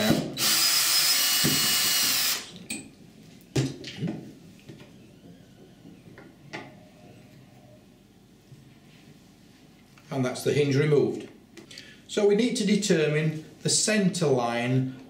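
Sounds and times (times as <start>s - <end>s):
power drill running: 0.0s - 2.5s.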